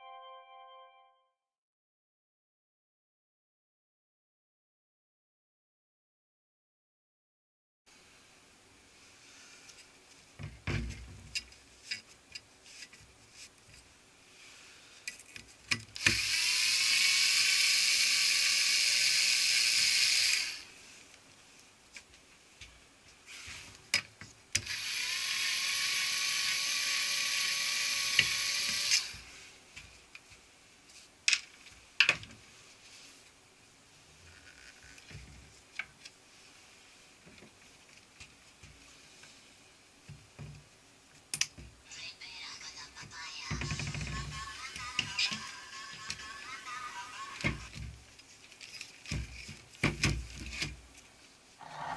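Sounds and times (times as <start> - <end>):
electric screwdriver running: 16.0 - 20.6, 24.7 - 29.1.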